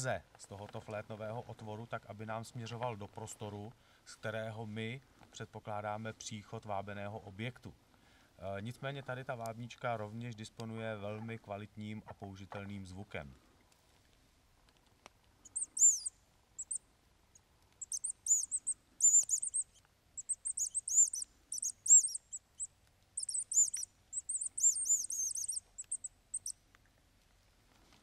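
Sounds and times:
high squeaks of predator call: 15.4s - 16.8s, 17.8s - 26.6s.

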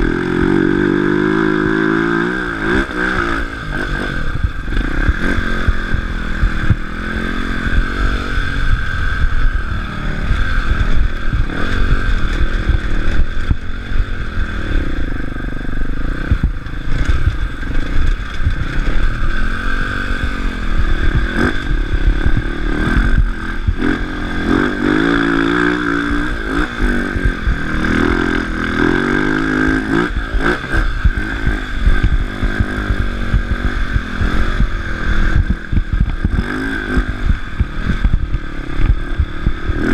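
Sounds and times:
dirt bike engine revving: 0.0s - 39.9s
bike knocking and rattling: 10.2s - 39.9s.

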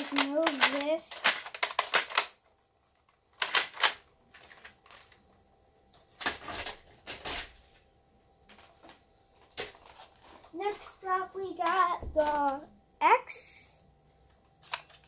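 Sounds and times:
toy blaster plastic clicks: 0.0s - 2.4s.

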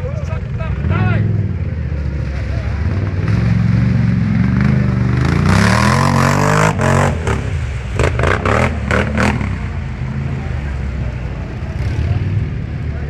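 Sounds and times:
quad bike engine revving: 0.7s - 10.8s.

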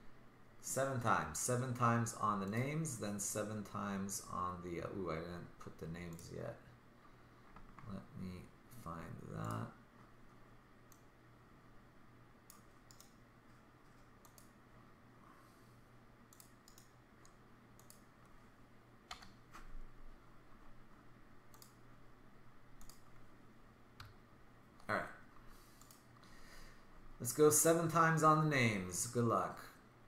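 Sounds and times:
low steady hum: 0.0s - 30.0s
mouse and keyboard clicks: 16.3s - 18.1s.

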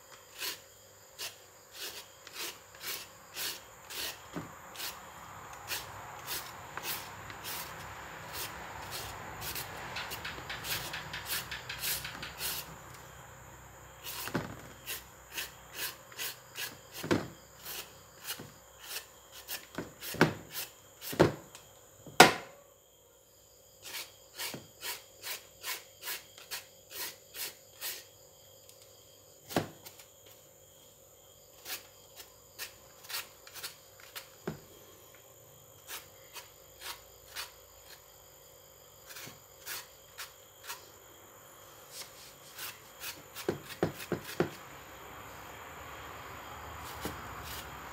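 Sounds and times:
mango scraping on shredder: 0.2s - 0.6s, 1.2s - 12.7s, 14.0s - 21.2s, 35.8s - 38.0s, 39.0s - 40.9s, 46.8s - 47.9s.

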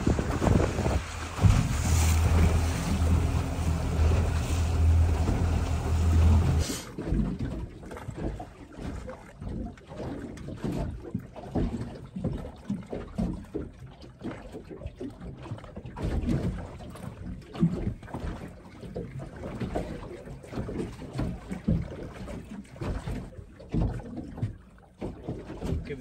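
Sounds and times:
wind gusting over microphone: 0.0s - 6.7s
low rumbling buffets: 0.0s - 6.8s
water slapping against metal hull: 0.0s - 26.0s.

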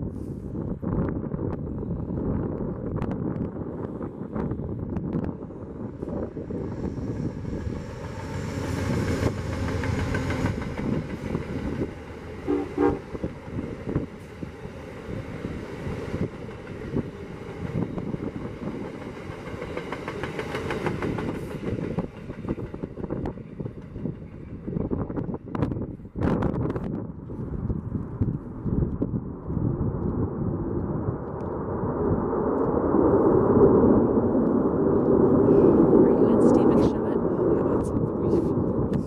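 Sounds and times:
passenger train rumbling past: 0.0s - 27.6s, 31.0s - 39.0s
train horn blast: 12.4s - 13.3s.

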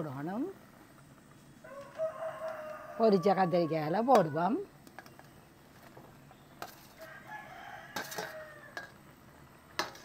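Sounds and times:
rooster crowing: 1.6s - 4.5s, 6.9s - 9.0s
metal spoon scraping on pan: 4.9s - 9.1s, 9.7s - 10.0s.

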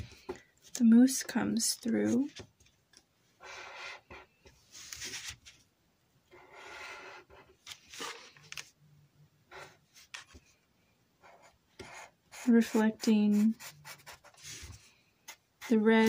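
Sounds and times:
marker scratching on cardboard: 6.4s - 7.5s, 11.2s - 16.0s.

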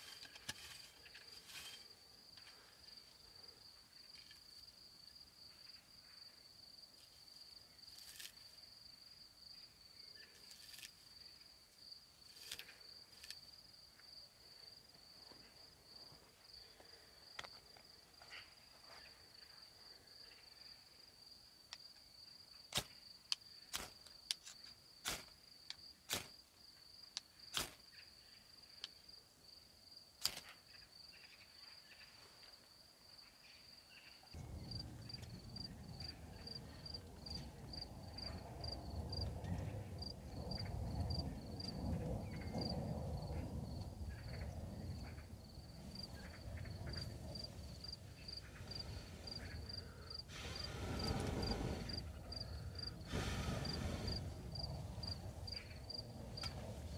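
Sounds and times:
crickets chirring: 0.0s - 56.9s
sharp cracks or snaps: 22.7s - 26.4s, 27.2s - 27.8s, 30.2s - 30.6s.

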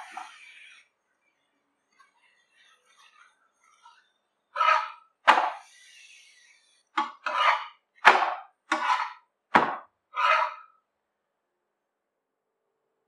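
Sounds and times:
metal spatula scraping a griddle: 0.0s - 0.9s, 1.9s - 7.9s, 8.7s - 9.3s, 10.1s - 10.7s.

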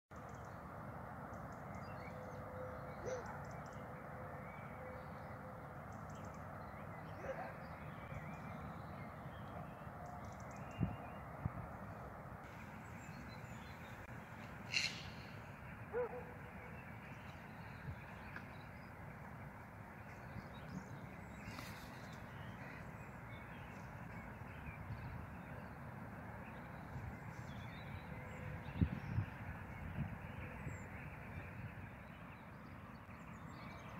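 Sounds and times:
distant road traffic rumble: 0.2s - 33.9s
distant bird calls: 1.3s - 33.9s
bird calls: 1.5s - 4.0s, 12.5s - 18.9s, 19.9s - 25.8s
wind rumble on microphone: 8.0s - 14.4s, 17.1s - 18.6s, 23.8s - 32.2s.

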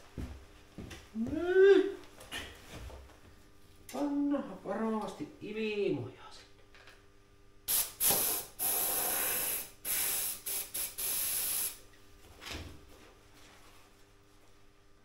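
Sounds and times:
compressed air hissing: 7.7s - 11.8s.

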